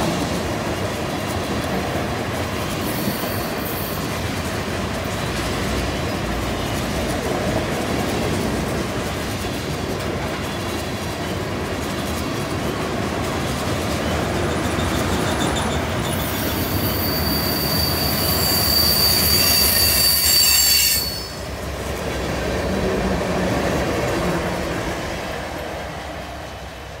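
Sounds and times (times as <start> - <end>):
train cars rumbling: 0.0 - 27.0
train wheels squealing on rail: 2.2 - 7.3, 13.4 - 21.7.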